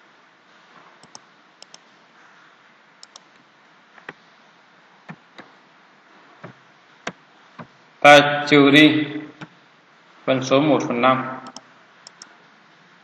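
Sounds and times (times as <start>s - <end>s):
faint steady hiss: 0.0s - 13.0s
mouse and keyboard clicks: 1.0s - 1.8s, 3.0s - 3.4s, 11.4s - 12.3s.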